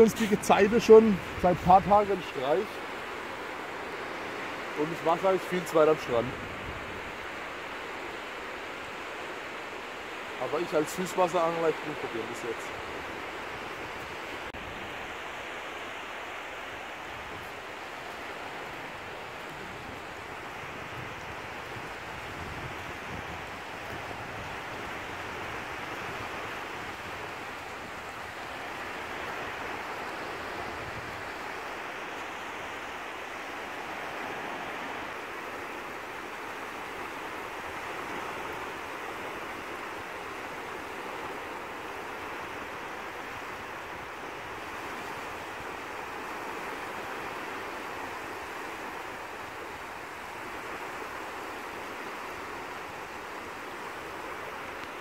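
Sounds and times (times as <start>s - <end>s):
small waves breaking on beach: 0.0s - 55.0s
wind rumble on microphone: 17.1s - 32.2s.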